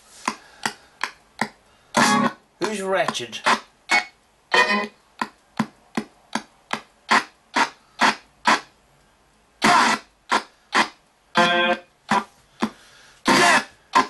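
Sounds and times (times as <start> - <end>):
choppy bursts of radio sound: 13.3 - 14.0.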